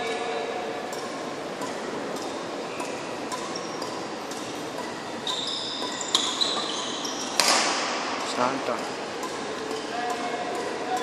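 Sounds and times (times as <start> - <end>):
background hubbub: 0.0 - 11.0
shoes squeaking on court floor: 0.0 - 11.0
rackets striking shuttlecocks: 0.8 - 11.0.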